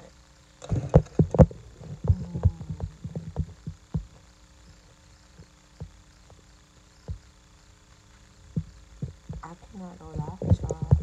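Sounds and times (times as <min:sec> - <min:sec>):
dull low thumps: 0:00.7 - 0:04.2, 0:08.5 - 0:09.5, 0:10.1 - 0:11.0.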